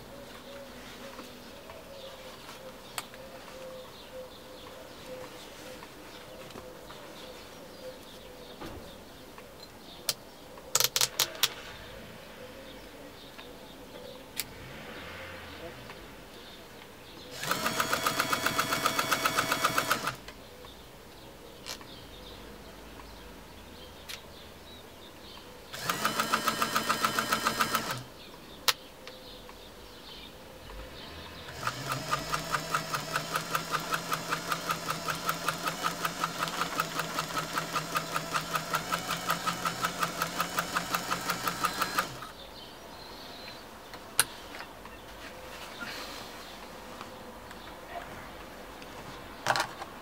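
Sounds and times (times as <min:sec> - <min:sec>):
sewing machine stitching: 0:17.3 - 0:20.2, 0:25.7 - 0:28.1, 0:31.5 - 0:42.3.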